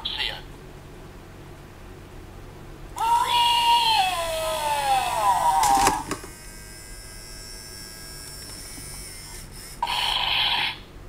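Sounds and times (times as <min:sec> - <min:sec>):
faint electronic hum: 0:00.0 - 0:11.0
toy buzz: 0:03.0 - 0:10.9.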